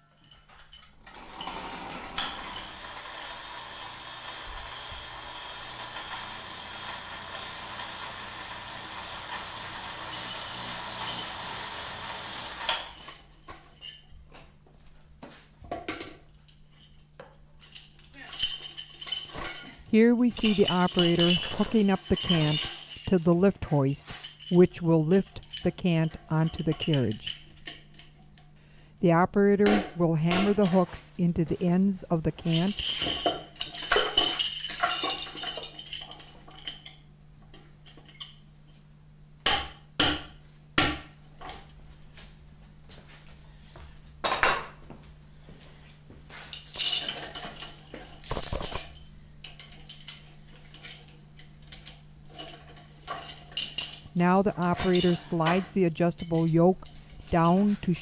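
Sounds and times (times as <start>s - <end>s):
metal chain clinking and rattling: 0.0s - 4.1s, 5.5s - 14.5s, 15.7s - 28.5s, 29.9s - 38.5s, 46.3s - 58.0s.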